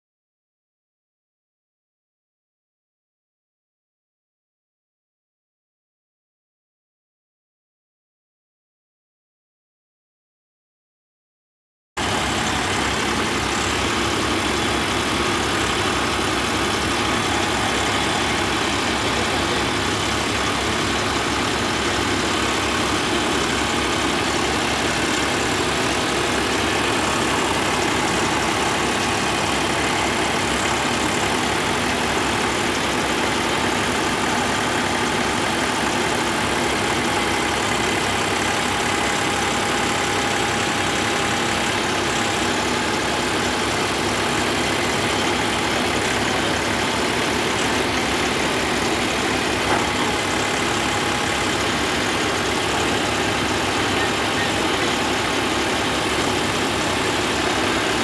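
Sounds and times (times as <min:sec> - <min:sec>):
tractor diesel engine idling: 0:12.0 - 0:58.0.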